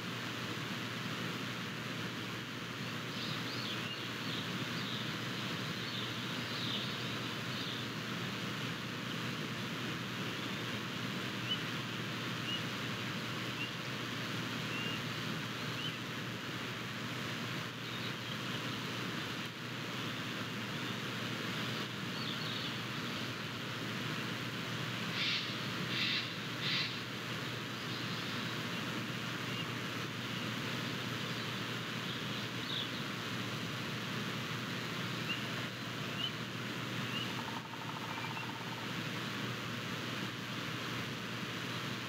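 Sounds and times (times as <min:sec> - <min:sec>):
small birds chirping: 0:03.0 - 0:08.0, 0:14.6 - 0:16.0, 0:21.6 - 0:23.4, 0:25.1 - 0:27.0, 0:27.6 - 0:30.6, 0:31.2 - 0:33.2, 0:36.1 - 0:38.9.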